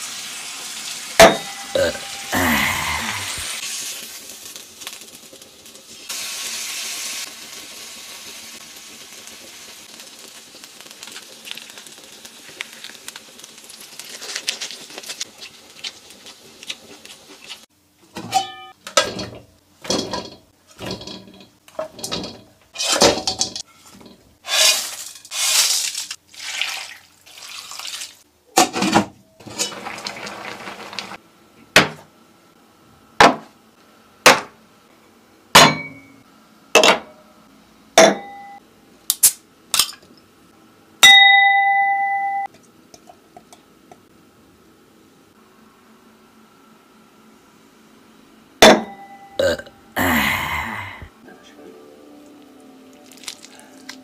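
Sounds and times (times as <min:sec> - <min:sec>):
meat sizzling on a grill pan: 0:00.0 - 0:01.2, 0:03.3 - 0:16.6
pan lid and cookware clattering: 0:18.2 - 0:24.2.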